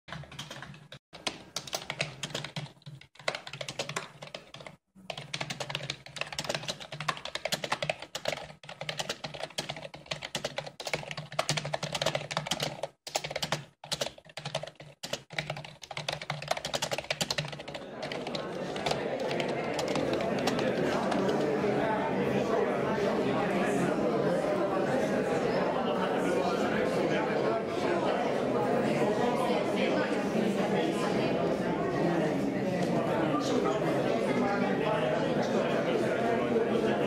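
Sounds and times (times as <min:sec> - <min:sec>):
typing on computer keyboard: 0:00.1 - 0:21.5.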